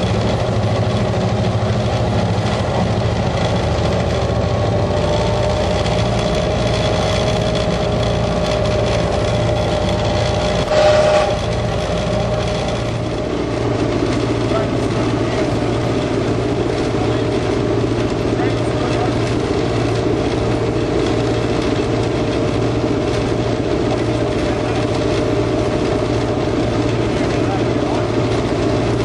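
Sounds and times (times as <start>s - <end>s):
cab hum: 0.0s - 29.0s
locomotive engine drone: 0.0s - 29.0s
loud clatter: 0.0s - 29.0s
wheels on rails: 0.0s - 29.0s.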